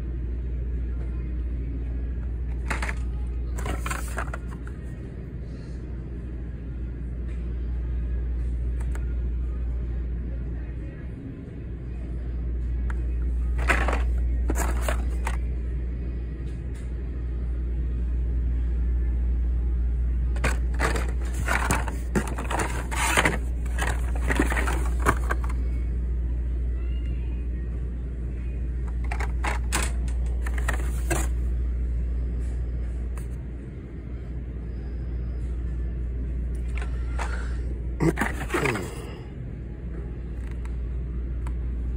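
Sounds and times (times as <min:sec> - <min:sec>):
steady low rumble: 0:00.0 - 0:41.9
plastic and cardboard crackling: 0:02.5 - 0:04.7, 0:13.5 - 0:15.4, 0:20.4 - 0:25.6, 0:29.0 - 0:31.4, 0:38.0 - 0:38.8.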